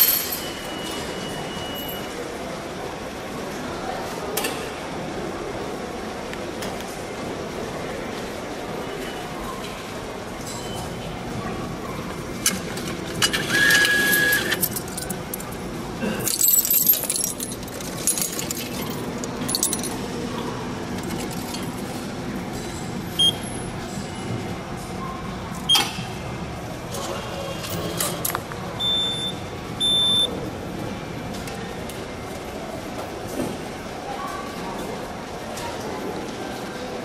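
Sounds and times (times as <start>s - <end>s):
coins clinking through slot: 0.0s - 2.1s, 12.5s - 20.0s, 20.9s - 21.8s
vending machine beeps: 0.3s - 2.1s, 13.2s - 14.8s, 23.1s - 23.6s, 25.7s - 26.0s, 28.7s - 30.3s.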